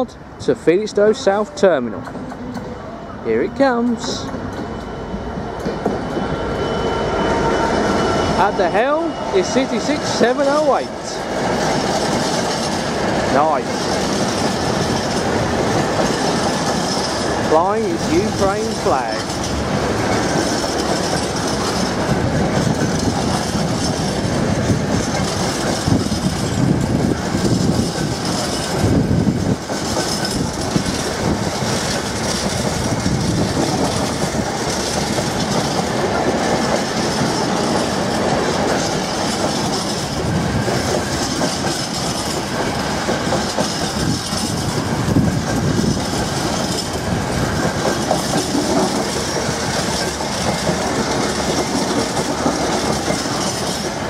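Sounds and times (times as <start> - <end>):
train wheels clattering over rail joints: 8.7 - 54.0.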